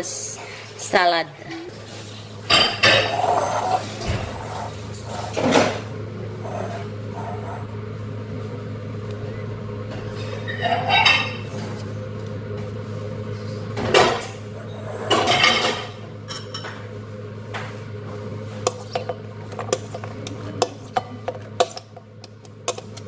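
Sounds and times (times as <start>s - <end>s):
steady low hum: 0.0s - 23.0s
glass bowls clinking: 2.4s - 5.8s, 10.2s - 11.5s, 15.1s - 16.8s
food sliding into bowl: 3.0s - 5.8s.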